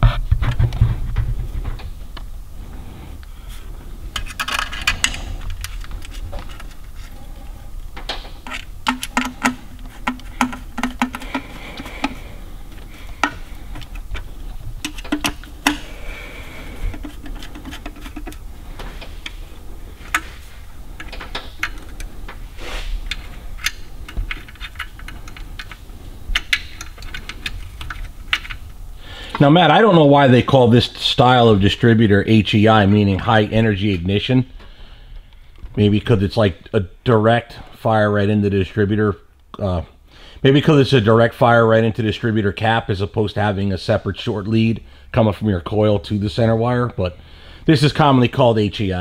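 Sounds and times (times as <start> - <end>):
small parts clicking and tapping: 4.2 - 7.1, 8.0 - 16.0, 16.8 - 18.4, 21.0 - 22.4, 23.0 - 28.8.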